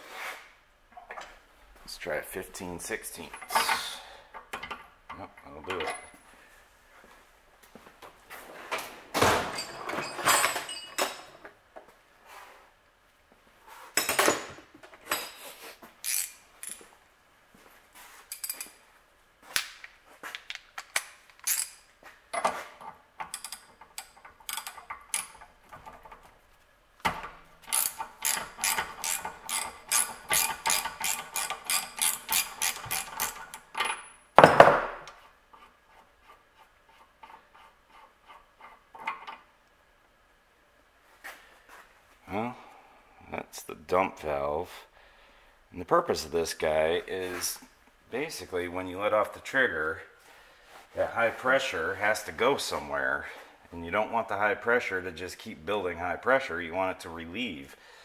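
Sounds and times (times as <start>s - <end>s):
socket ratchet clicking: 27.7s - 33.8s.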